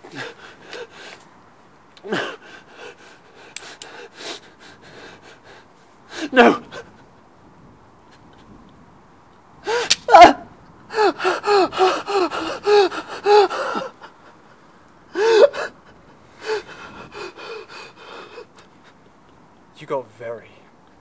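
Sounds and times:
man gasping and sobbing: 0:00.0 - 0:01.1, 0:02.0 - 0:07.0, 0:09.6 - 0:10.3, 0:10.9 - 0:18.6
man crying out loudly: 0:06.2 - 0:06.9, 0:09.7 - 0:14.0
sharp crack: 0:09.7 - 0:10.3.

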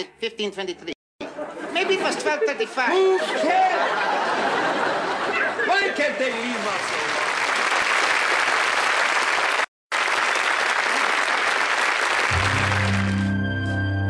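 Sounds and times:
audience applauding: 0:06.2 - 0:13.4.

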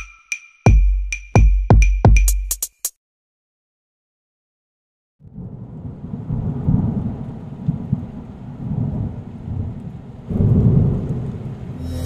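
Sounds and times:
thunder rumbling: 0:05.2 - 0:12.0.

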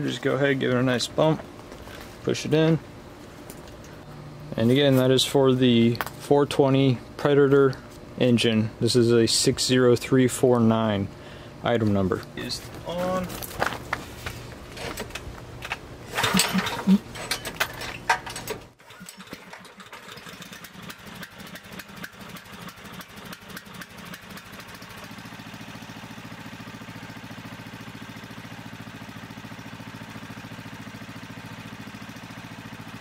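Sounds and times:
small engine running and idling: 0:12.4 - 0:33.0
starter cord pulls: 0:14.8 - 0:24.6.

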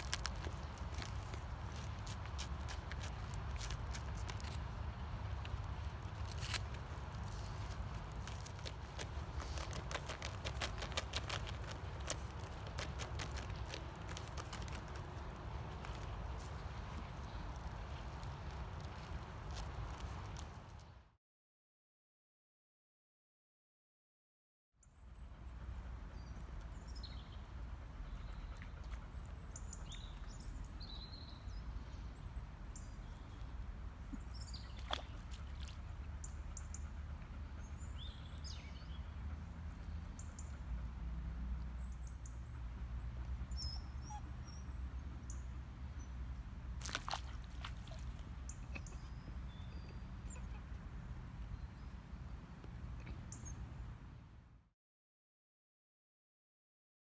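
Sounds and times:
birds chirping: 0:48.0 - 0:53.9.

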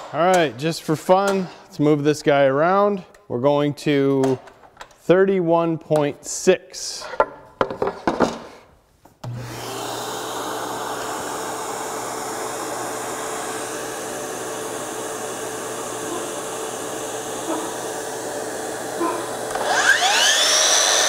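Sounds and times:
motor whirring and humming: 0:09.3 - 0:21.0.

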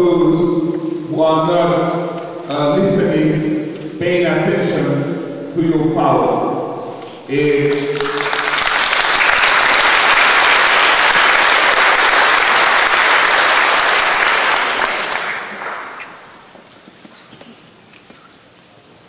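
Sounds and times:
audience applauding: 0:07.6 - 0:16.5.

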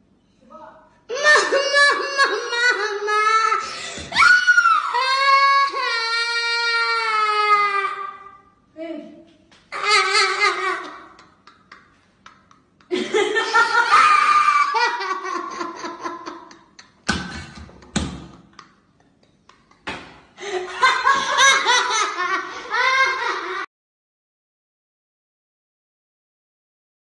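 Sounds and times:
people laughing: 0:01.1 - 0:03.6, 0:09.8 - 0:17.9, 0:19.5 - 0:23.7.

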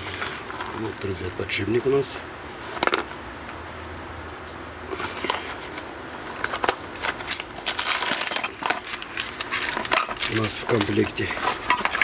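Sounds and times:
plastic wrapping crinkling: 0:05.1 - 0:12.0.

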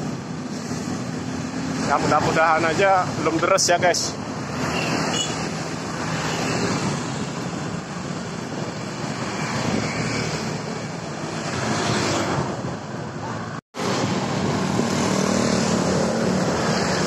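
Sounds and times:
motorbikes passing: 0:00.0 - 0:17.0
street traffic: 0:00.0 - 0:17.0
wind on microphone: 0:06.7 - 0:12.8.

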